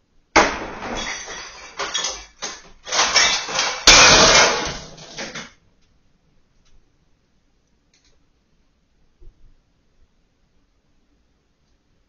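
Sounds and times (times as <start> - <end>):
shelves crashing and clattering: 0.3 - 5.6.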